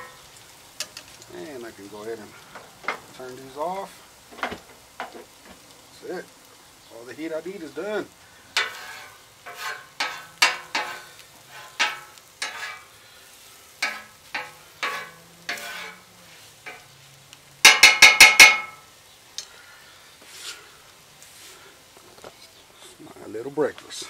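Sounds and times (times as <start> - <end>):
metal spatula scraping griddle: 8.5 - 17.0, 20.2 - 21.7.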